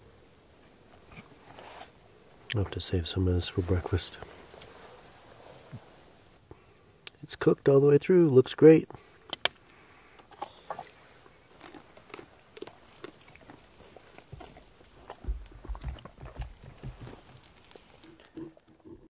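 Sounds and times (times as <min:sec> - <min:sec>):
person chewing cake: 0:10.3 - 0:19.0.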